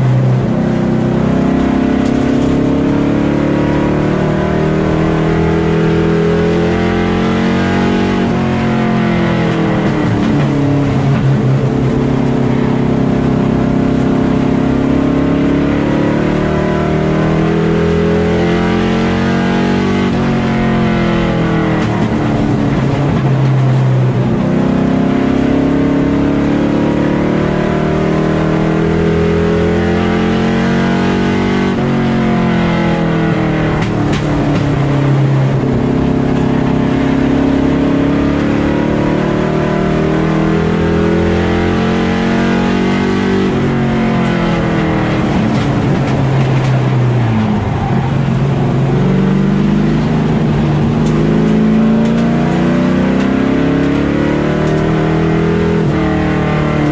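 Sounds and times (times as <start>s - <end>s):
race car engine revving: 0.0s - 56.9s.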